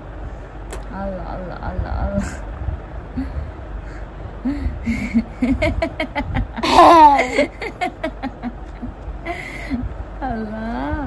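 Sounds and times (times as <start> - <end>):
baby squealing laugh: 6.6 - 7.4
baby laughing: 6.6 - 8.8.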